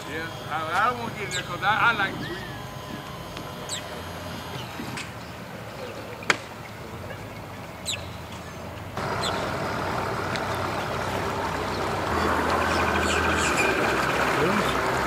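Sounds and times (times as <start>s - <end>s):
outboard motor idling: 0.0s - 15.0s.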